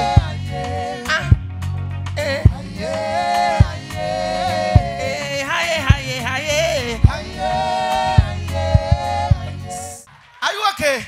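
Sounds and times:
bass line: 0.0s - 10.0s
gospel singing: 0.0s - 10.5s
kick drum hitting: 1.3s - 1.5s, 2.3s - 2.8s, 3.6s - 3.9s, 4.7s - 5.1s, 7.0s - 7.3s, 8.1s - 9.6s.

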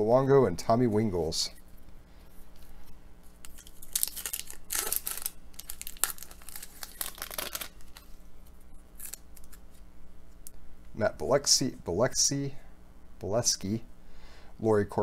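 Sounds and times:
wrapper crinkling and tearing: 3.4s - 9.8s.

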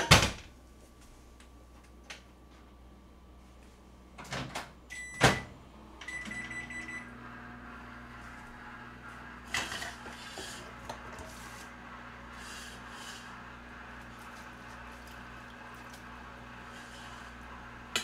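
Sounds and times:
microwave humming: 0.0s - 18.0s
keypad beeps: 6.1s - 7.0s.

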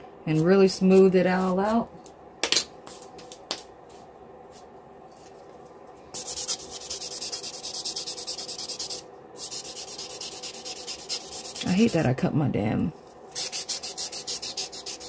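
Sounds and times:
nail buffer rubbing: 6.2s - 12.0s, 13.4s - 15.0s.

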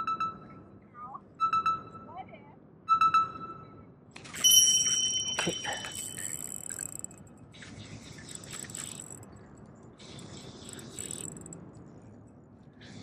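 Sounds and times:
spinning reel whirring: 4.4s - 7.2s, 8.3s - 9.3s, 10.5s - 11.6s.

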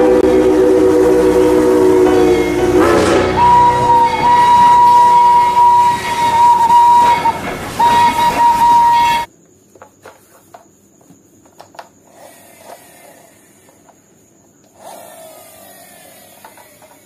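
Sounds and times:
toy train scraping or rolling: 0.0s - 9.3s, 14.8s - 17.0s
toy train clicks and taps: 16.2s - 17.0s.

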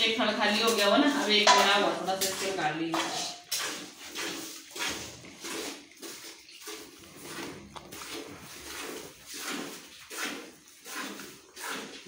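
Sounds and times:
cow snuffling and breathing: 3.7s - 12.0s.

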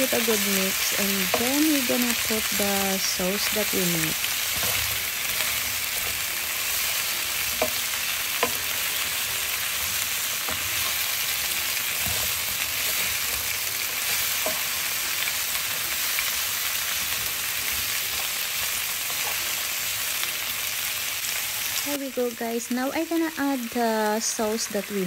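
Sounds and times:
stir-fry sizzling in a skillet: 0.0s - 25.0s.

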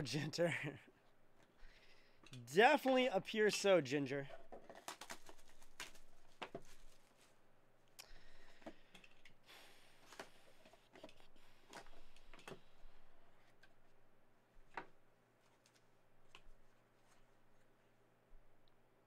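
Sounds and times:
packaging rustle: 4.6s - 7.4s.

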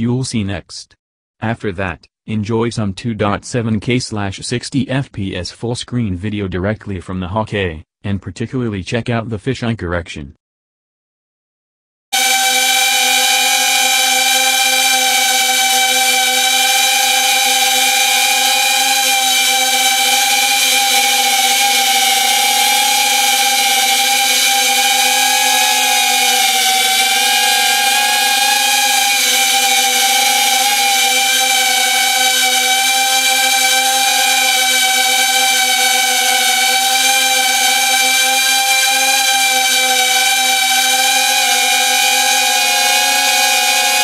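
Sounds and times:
quadcopter motors whining: 12.2s - 44.0s.

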